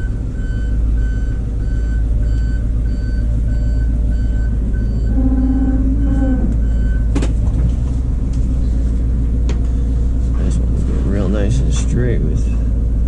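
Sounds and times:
truck back-up alarm beeping: 0.0 - 7.4
low hum: 0.0 - 13.0
truck engine rumble: 0.0 - 13.0.

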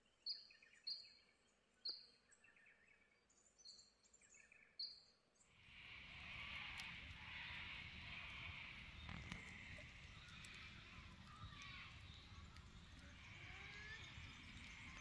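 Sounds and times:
campfire crackling: 5.6 - 15.0
steady high hiss: 5.6 - 15.0
whistling bird calls: 6.0 - 15.0.

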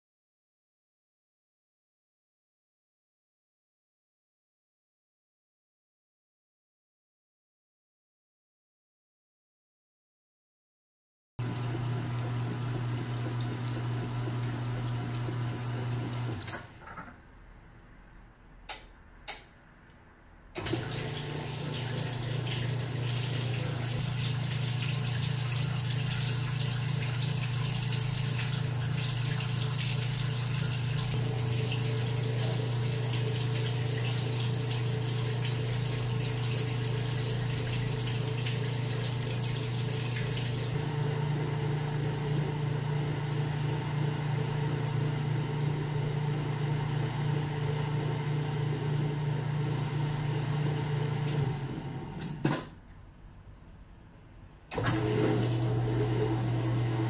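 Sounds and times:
washer pump motor hum: 11.4 - 17.1, 20.5 - 52.7, 54.7 - 57.0
draining water rushing: 20.7 - 40.8.

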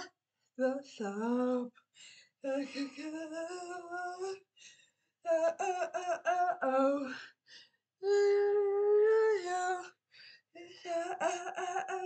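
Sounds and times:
person singing unaccompanied: 0.0 - 1.7, 2.4 - 4.4, 5.2 - 7.2, 8.0 - 9.9, 10.6 - 12.0.

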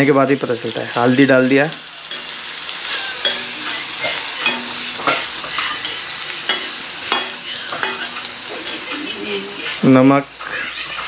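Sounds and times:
food sizzling in hot oil: 0.0 - 11.0
spoon scraping a pan: 2.0 - 9.8.

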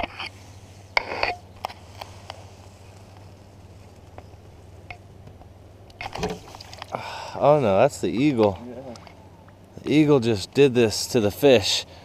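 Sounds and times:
water splashing and dripping: 6.1 - 7.0.

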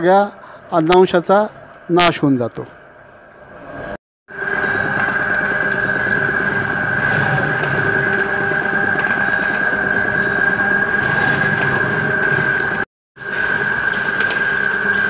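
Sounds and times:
high whine: 3.3 - 15.0
oil press machine humming: 4.3 - 15.0.

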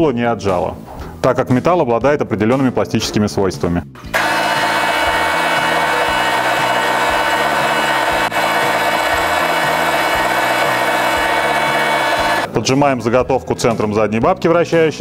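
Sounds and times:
metal lathe whining: 4.2 - 12.5.

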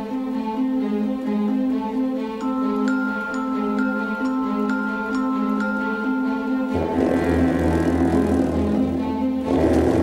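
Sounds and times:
slow gentle melody of struck notes: 2.4 - 9.6
held lower tones: 2.4 - 10.0.

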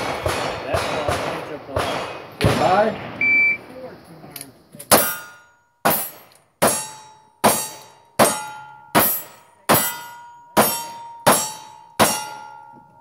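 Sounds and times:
steel targets ringing: 4.9 - 13.0.

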